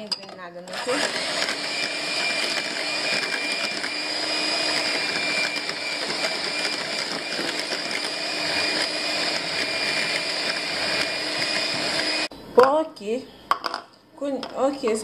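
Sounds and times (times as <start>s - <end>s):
electric hand mixer whirring: 0.7s - 12.3s.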